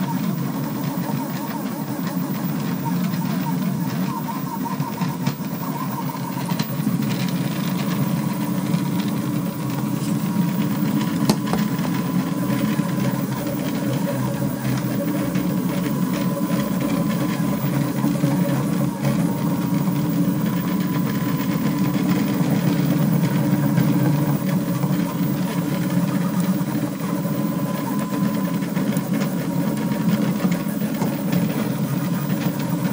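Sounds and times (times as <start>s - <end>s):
steady thin whine: 0.0s - 32.9s.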